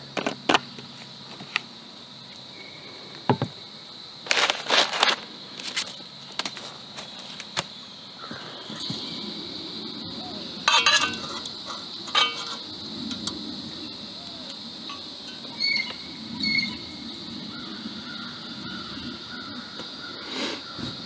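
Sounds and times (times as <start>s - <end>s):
high insect buzz: 0.0s - 21.0s
cook pot clattering and clinking: 10.6s - 13.4s.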